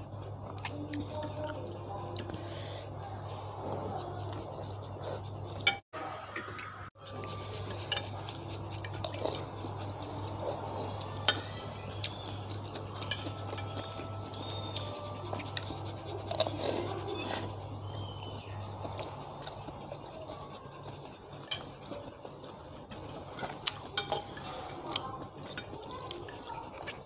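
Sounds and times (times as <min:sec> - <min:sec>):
chewing: 0:00.0 - 0:05.8, 0:06.4 - 0:27.0
utensils clinking on ceramic bowl: 0:07.0 - 0:09.4, 0:11.2 - 0:17.6, 0:22.9 - 0:27.0.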